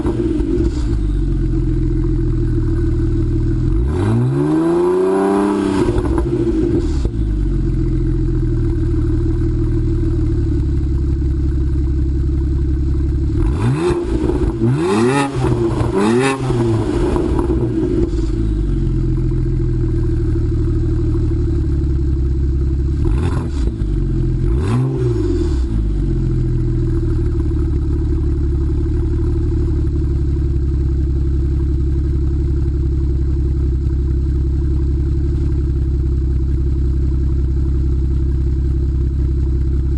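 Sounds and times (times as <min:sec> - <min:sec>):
car engine revving: 0:00.0 - 0:10.8, 0:13.0 - 0:22.0, 0:22.7 - 0:30.2
car engine idling: 0:00.0 - 0:39.9.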